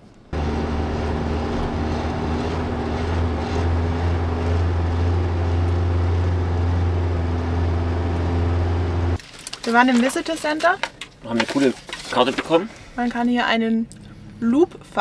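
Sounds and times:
wind and tyre noise: 0.0 - 9.2
truck engine droning: 0.2 - 9.2, 13.8 - 15.0.

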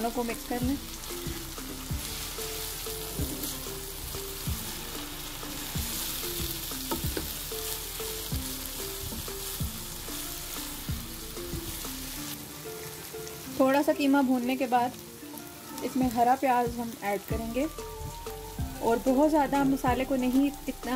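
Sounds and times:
faint background music with beat: 0.0 - 20.9
meat sizzling in a wok: 0.0 - 20.9
spatula stirring in a wok: 0.2 - 13.4.

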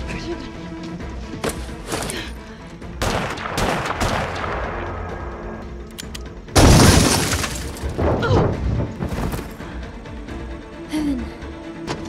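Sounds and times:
tense music score: 0.0 - 12.0
loud crash: 6.6 - 8.2.

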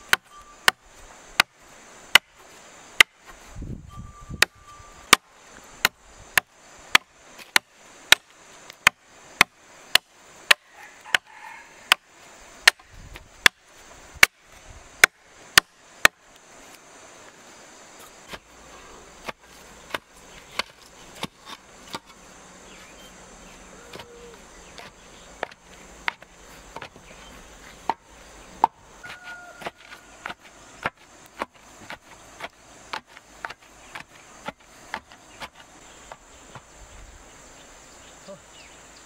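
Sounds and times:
hoe chopping into packed earth: 29.0 - 36.6.

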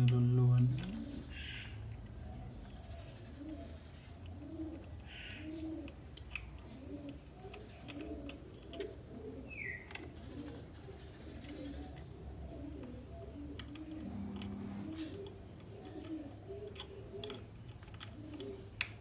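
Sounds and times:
dove cooing: 0.0 - 1.7, 2.7 - 18.8
clicks of metal parts handled: 13.6 - 19.0.

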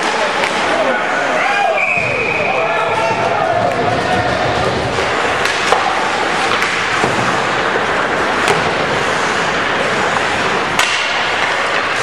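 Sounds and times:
sharp cracks of stick on puck: 0.0 - 0.8, 4.6 - 12.0
hockey sticks clacking: 0.0 - 1.3, 2.5 - 12.0
skates scraping on ice: 2.4 - 12.0.

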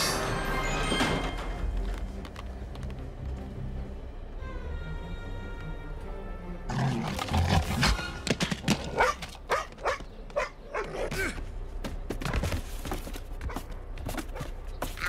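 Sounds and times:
film score sustained note: 3.4 - 6.7
dog snarling and barking: 8.8 - 11.1.

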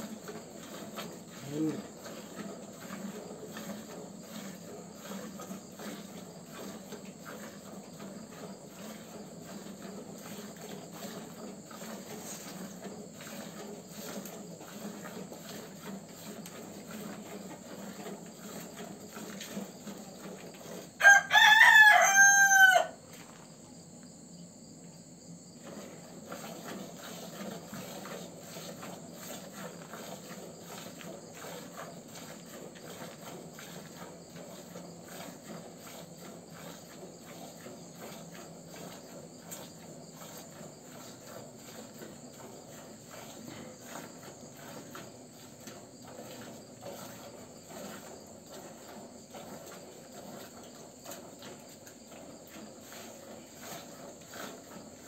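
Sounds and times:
milk squirting into bucket: 0.0 - 21.0, 25.6 - 55.0
crickets chirring: 0.0 - 55.0
rooster crowing: 21.0 - 23.0.

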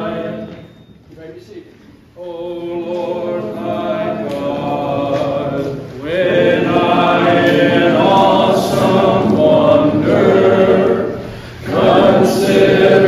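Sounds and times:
group singing a hymn: 0.0 - 1.0, 2.1 - 13.0.

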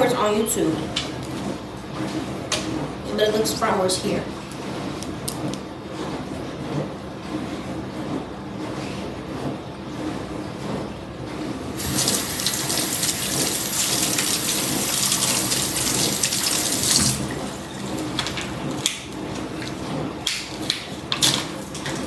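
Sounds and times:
kitchen tap running: 11.8 - 20.4.

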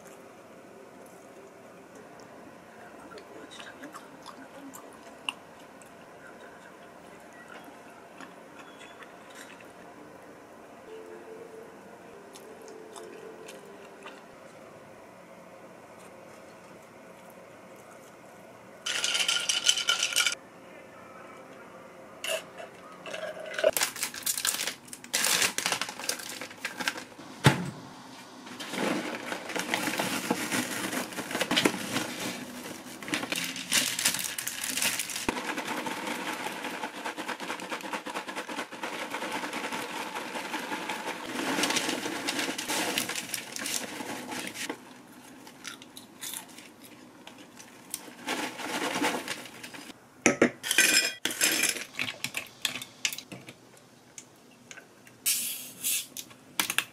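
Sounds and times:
ice cubes clinking into a glass: 18.9 - 20.4
popcorn bag shaken and rattling: 18.9 - 20.4, 23.7 - 27.2, 28.5 - 44.8, 47.4 - 50.0.

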